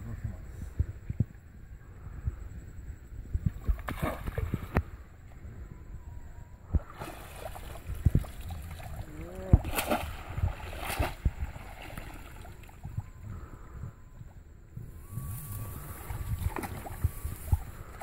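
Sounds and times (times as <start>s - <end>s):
water sloshing and splashing: 6.8s - 13.1s, 15.7s - 18.0s.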